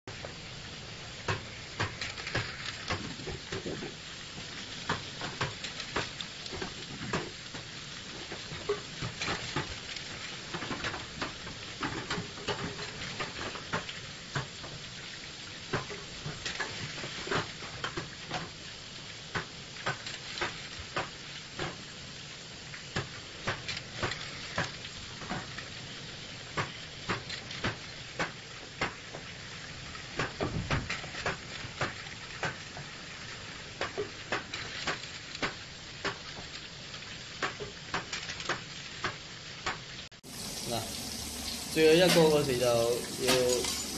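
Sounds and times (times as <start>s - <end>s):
machine hissing: 40.2s - 43.9s.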